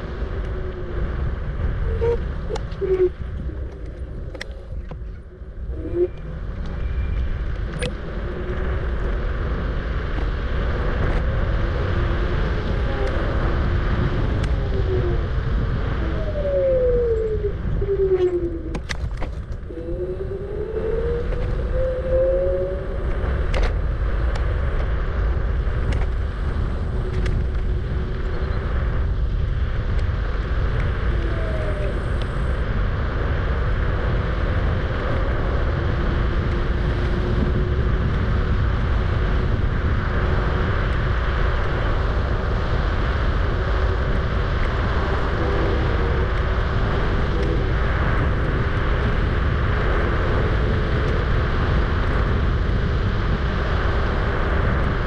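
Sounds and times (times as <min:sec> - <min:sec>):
road rumble: 0:00.0 - 0:55.0
wind: 0:00.0 - 0:55.0
electric motor whine: 0:10.7 - 0:24.9, 0:29.9 - 0:32.7.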